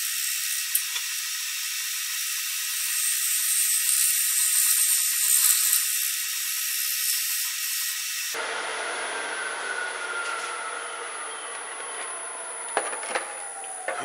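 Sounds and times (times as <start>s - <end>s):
lathe running whine: 0.0s - 14.0s.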